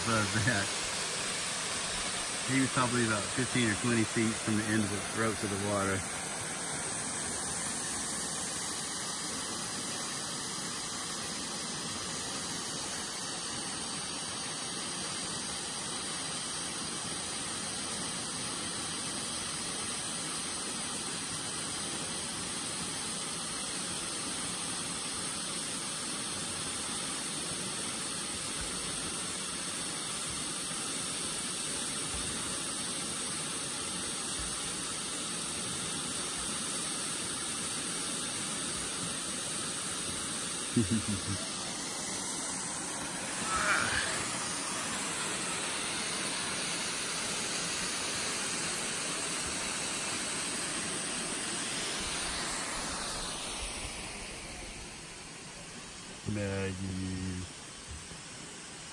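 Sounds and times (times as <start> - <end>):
waterfall rushing: 0.0 - 36.2, 37.0 - 58.9.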